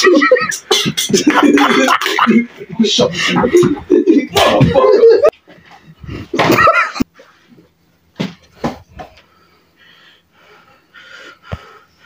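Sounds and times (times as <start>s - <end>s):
stifled laughter: 0.0s - 5.4s
breathing: 9.1s - 12.0s.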